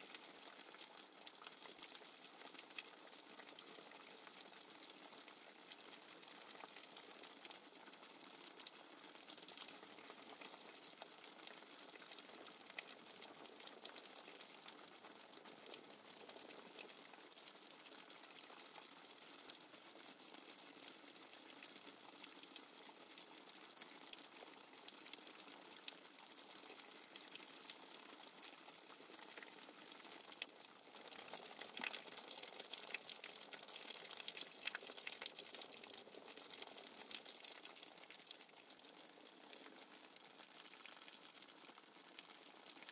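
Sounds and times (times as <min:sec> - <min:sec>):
raindrops tapping on leaves: 0:31.4 - 0:35.4.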